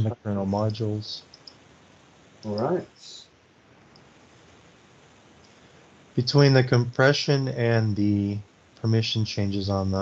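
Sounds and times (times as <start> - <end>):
faint steady hiss: 0.0 - 10.0.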